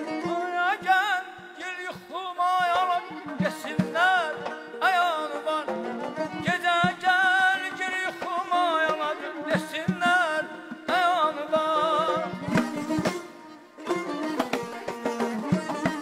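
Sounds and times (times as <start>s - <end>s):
ornamented melodic line with trills: 11.4s - 16.0s
barrel drum: 12.2s - 13.3s, 13.9s - 16.0s.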